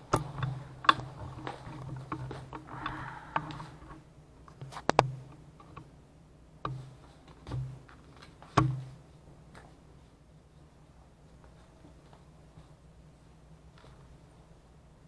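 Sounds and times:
sharp clicks and knocks: 0:00.0 - 0:05.9
faint low hum: 0:00.0 - 0:15.0.

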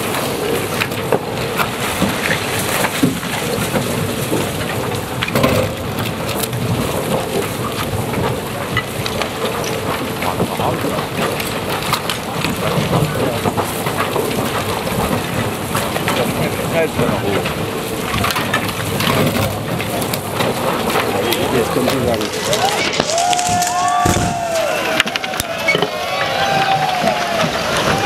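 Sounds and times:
crumbling concrete clatter: 0:00.0 - 0:28.0.

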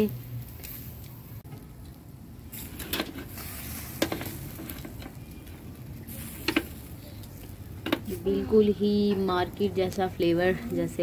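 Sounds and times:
coals crackling: 0:00.0 - 0:11.0
meat sizzling over charcoal: 0:00.0 - 0:11.0.

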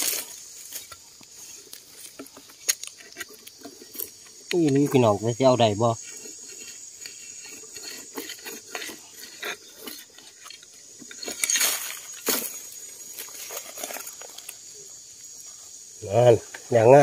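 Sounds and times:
high insect drone: 0:00.0 - 0:17.0
tool scraping charred wood and soil: 0:00.0 - 0:17.0.

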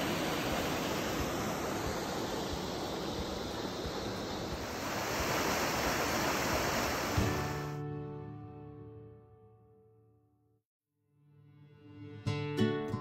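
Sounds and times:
creek water rushing: 0:00.0 - 0:07.8.

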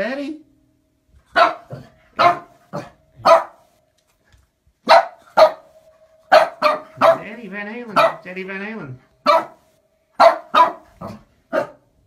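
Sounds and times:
small dog barking: 0:01.3 - 0:03.7, 0:04.8 - 0:08.3, 0:09.2 - 0:11.9.

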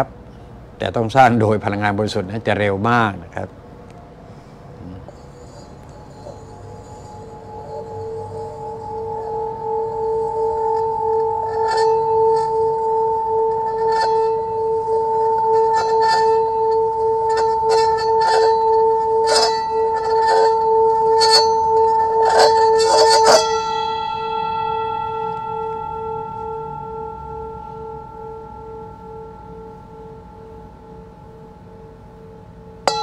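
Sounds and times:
sustained wobbling ringing tone: 0:04.5 - 0:33.0.

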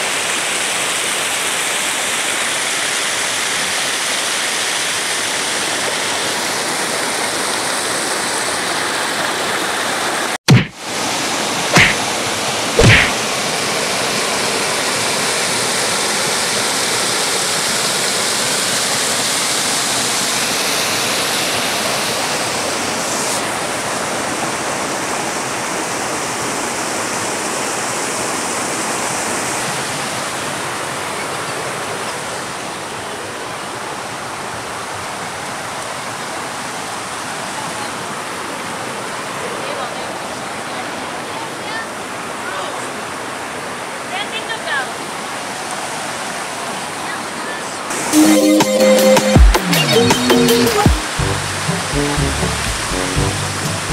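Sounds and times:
river rushing over stones: 0:00.0 - 0:48.2
short loud knocks: 0:10.5 - 0:10.8, 0:11.8 - 0:12.0, 0:12.8 - 0:13.2.

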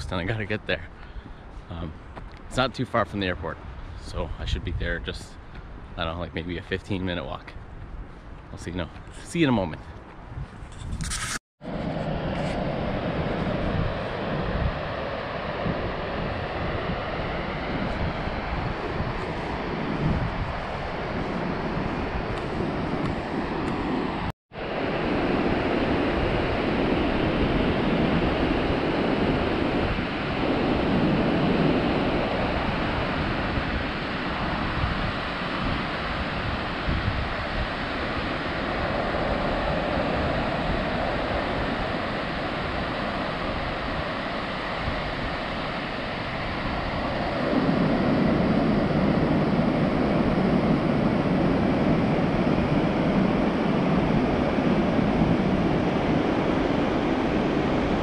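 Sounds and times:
wind buffeting microphone: 0:00.0 - 0:58.0
ocean surf on sandy beach: 0:11.7 - 0:58.0.

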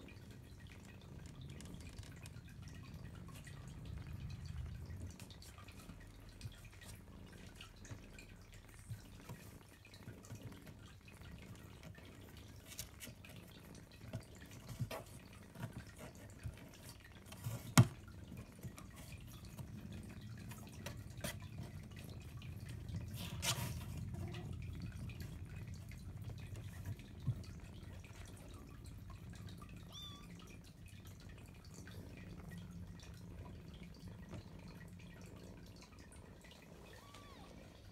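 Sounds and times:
low steady rumble: 0:00.1 - 0:09.5, 0:18.4 - 0:37.9
kittens suckling: 0:18.4 - 0:37.9.

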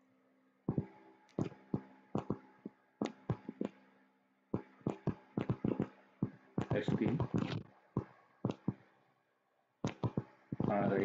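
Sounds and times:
faint electrical hum: 0:00.0 - 0:11.0
stylus tapping on tablet: 0:00.7 - 0:03.8, 0:04.5 - 0:08.9, 0:09.8 - 0:11.0.

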